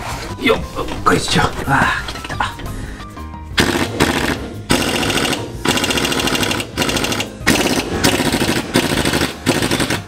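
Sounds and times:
pneumatic impact wrench hammering: 3.6s - 10.0s.

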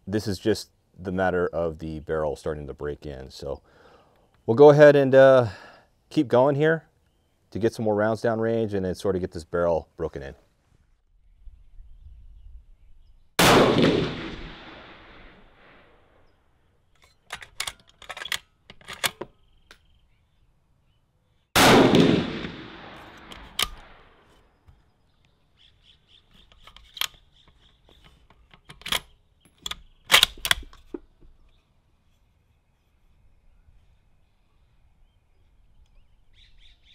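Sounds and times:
rifle shots echoing: 13.4s - 16.2s, 21.6s - 24.3s
rifle bolt clicking: 17.0s - 19.8s, 23.0s - 23.9s, 26.4s - 31.1s.

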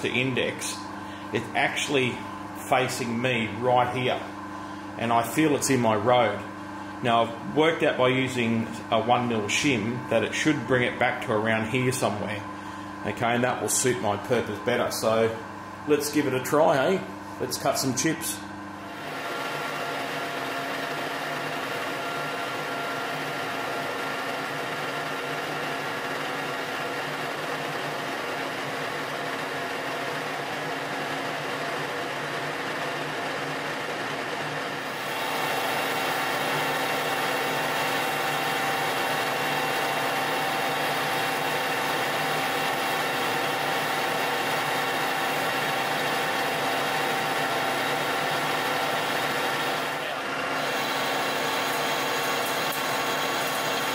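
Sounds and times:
lathe turning steel bar: 34.9s - 53.9s.

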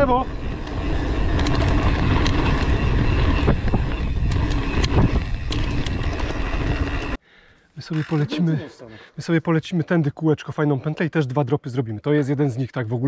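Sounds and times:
tyres rumbling over trail: 0.0s - 7.2s
wind buffeting microphone: 0.0s - 7.2s
bike knocks and rattles: 0.4s - 7.1s.

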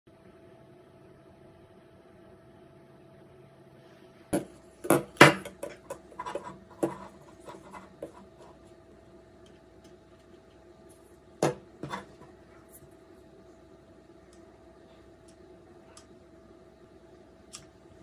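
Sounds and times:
faint steady hum: 0.1s - 18.0s
plastic objects clattering on wood: 4.4s - 8.3s.

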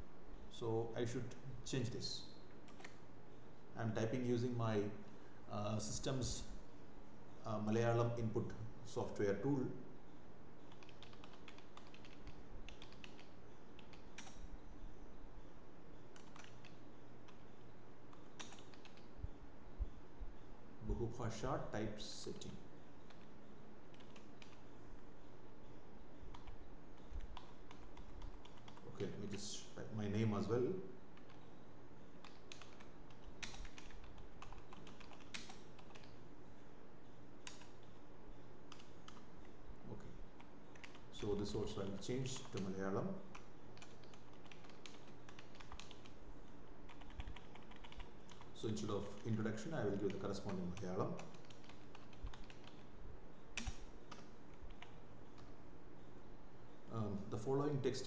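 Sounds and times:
computer keyboard typing: 2.7s - 3.0s, 10.7s - 14.4s, 16.1s - 17.4s, 18.1s - 19.1s, 23.9s - 24.6s, 26.3s - 29.5s, 31.2s - 31.5s, 32.2s - 36.2s, 37.4s - 37.9s, 38.7s - 39.6s, 40.4s - 46.2s, 46.8s - 52.9s, 53.6s - 55.6s.

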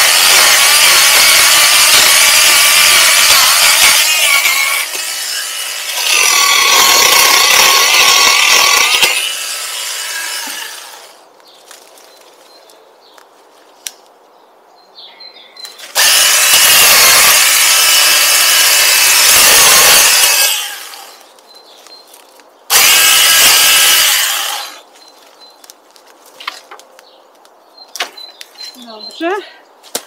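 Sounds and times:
power saw cutting branch: 0.0s - 11.2s, 15.8s - 21.2s, 22.7s - 24.8s.

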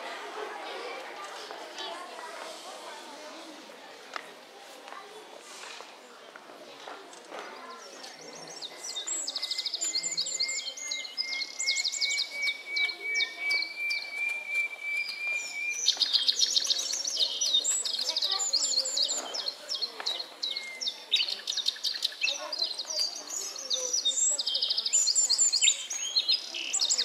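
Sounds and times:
small birds chirping: 7.1s - 27.0s.

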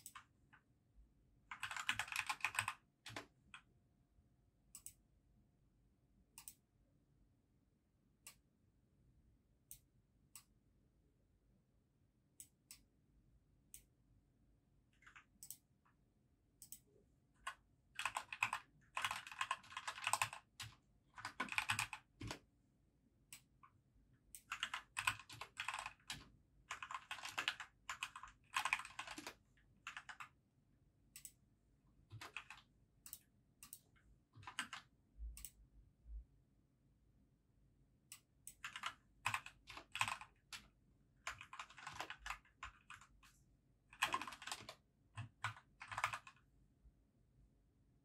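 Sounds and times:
typing on a keyboard: 1.5s - 3.7s, 17.4s - 22.4s, 24.4s - 30.4s, 32.1s - 33.2s, 34.4s - 35.6s, 38.5s - 43.2s, 43.9s - 46.4s.

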